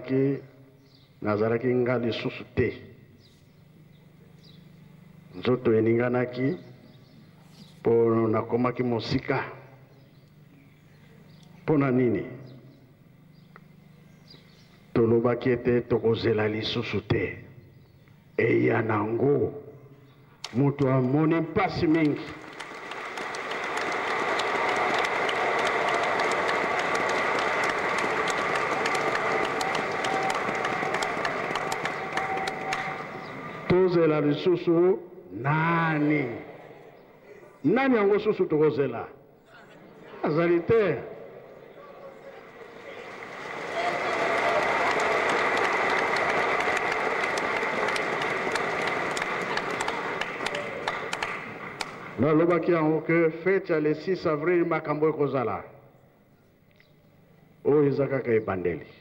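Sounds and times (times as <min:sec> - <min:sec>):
congregation noise: 0:00.0 - 0:58.8
sharp claps: 0:20.4 - 0:33.8, 0:42.6 - 0:52.6
crowd applauding: 0:21.6 - 0:34.0, 0:41.2 - 0:52.7.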